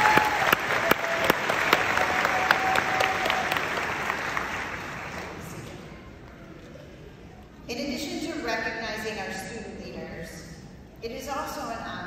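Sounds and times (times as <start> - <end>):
audience applauding: 0.0 - 5.8.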